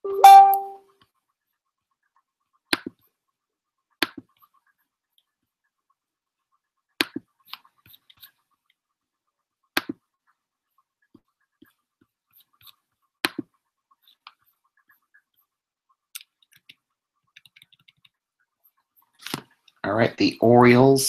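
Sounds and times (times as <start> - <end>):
short bright tone: 0.0 - 0.8.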